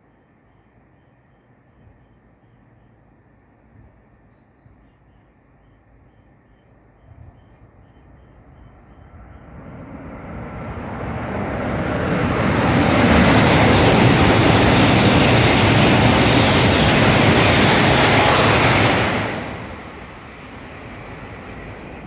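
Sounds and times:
high-speed train passing: 8.0s - 22.0s.

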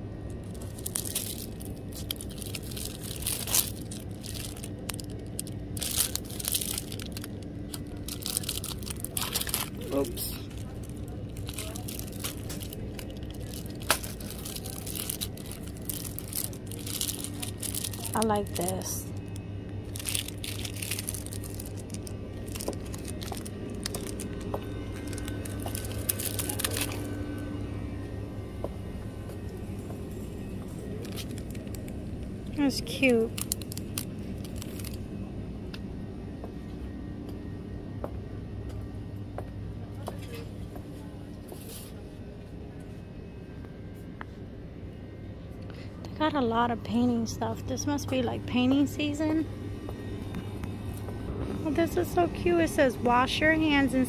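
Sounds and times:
steady low hum: 0.0s - 54.0s
plastic packaging crinkling: 0.4s - 27.2s, 30.8s - 32.0s, 33.0s - 35.0s
shopping cart rattling: 0.6s - 18.9s.

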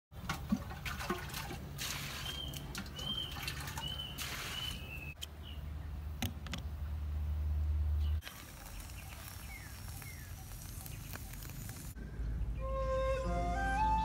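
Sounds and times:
water splashing into metal basin: 0.2s - 5.0s
bird chirping: 2.2s - 6.8s, 7.9s - 12.8s.

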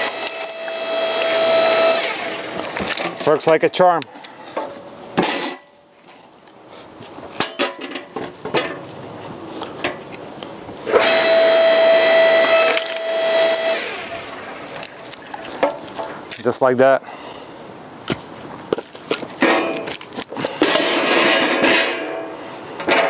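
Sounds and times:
log splitter motor whining: 0.0s - 3.5s, 10.8s - 15.8s.

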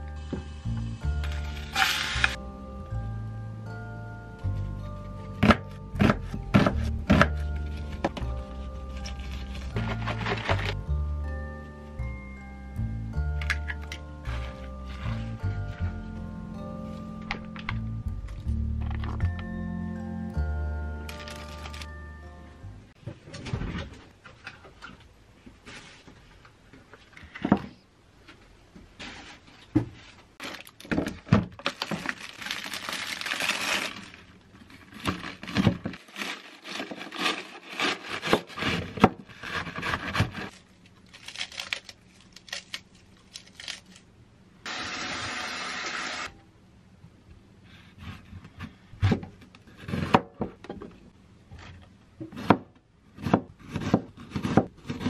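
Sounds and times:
knife cutting lettuce and onion: 5.4s - 10.8s, 36.1s - 40.5s, 53.2s - 55.0s.

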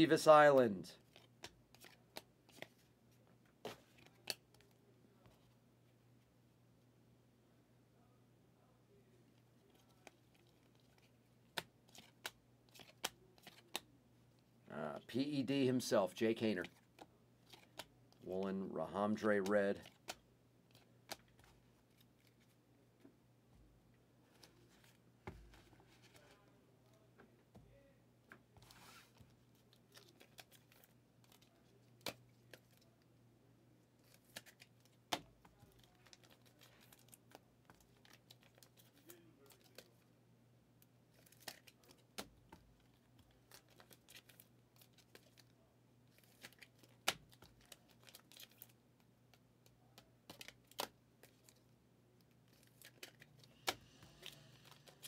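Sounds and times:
card sleeves sliding and crinkling: 28.6s - 31.4s, 52.5s - 55.0s.

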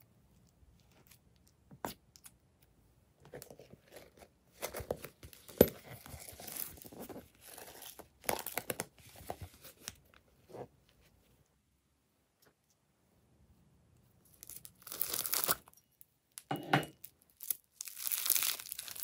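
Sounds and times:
plastic crinkling and crackling: 3.3s - 10.2s, 14.3s - 15.8s, 16.4s - 19.0s.

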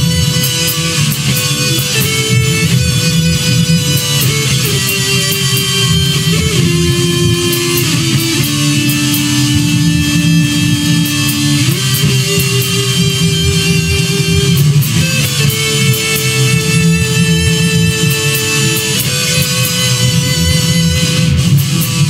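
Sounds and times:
bass and drums: 0.0s - 22.0s
electric guitar melody: 0.0s - 22.0s.

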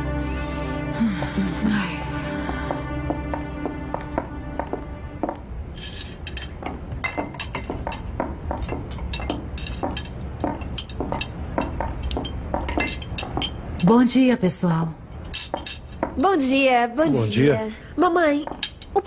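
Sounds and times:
tableware clinking: 5.8s - 14.0s, 15.0s - 16.2s, 18.5s - 19.0s.

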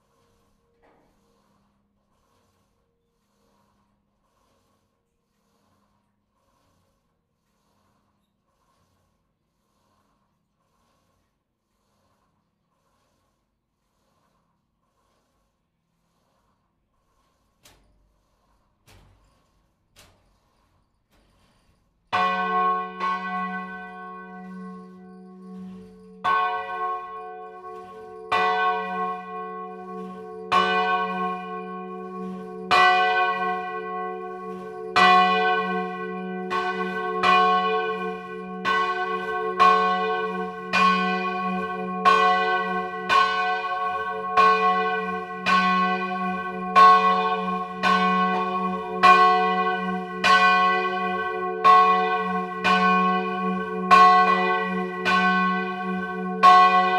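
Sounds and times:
church bell ringing: 22.1s - 56.9s.

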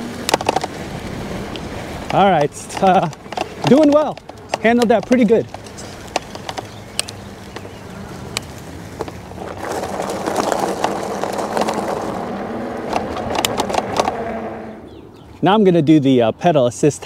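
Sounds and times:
bike tyres rolling on rough ground: 0.0s - 17.0s
clicks and rattles: 0.2s - 0.8s, 1.5s - 14.2s
electric motor low hum: 6.7s - 15.0s.

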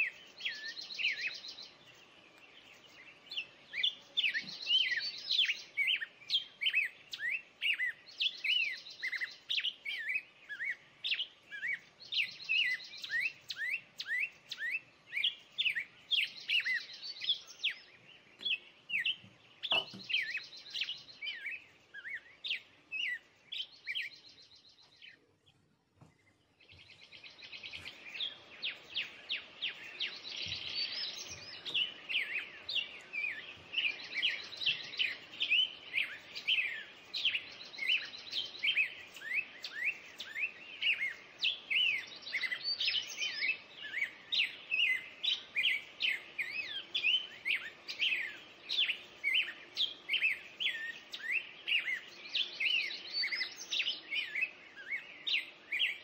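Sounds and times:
birds chirping and trilling: 0.0s - 56.0s.

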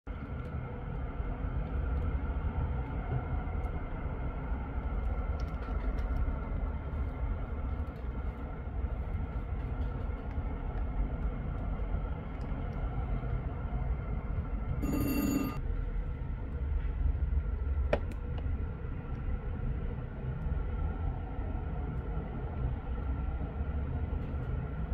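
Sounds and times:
faint steady whine: 6.3s - 16.6s.

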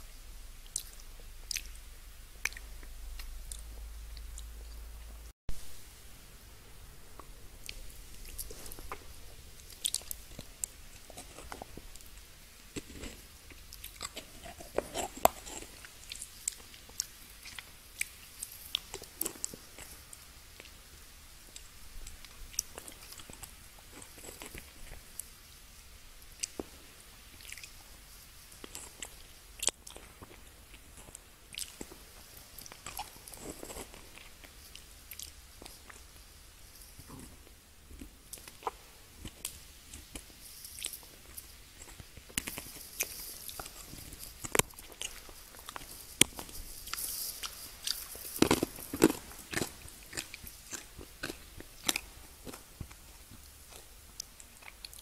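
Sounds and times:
candy crunching against teeth: 7.1s - 20.7s, 38.0s - 55.0s.

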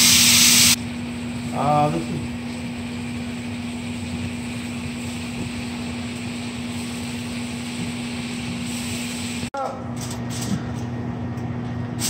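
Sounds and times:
food sizzling in a skillet: 0.0s - 0.8s
vent fan droning: 0.0s - 12.0s.

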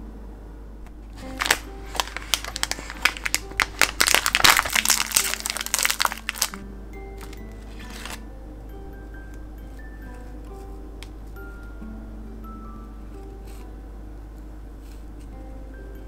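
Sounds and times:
foil wrapper crinkling: 1.2s - 6.6s, 7.2s - 8.2s.

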